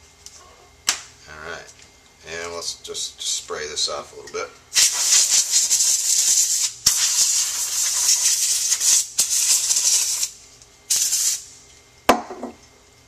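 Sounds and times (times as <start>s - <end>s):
compressed air hissing: 4.7s - 11.5s.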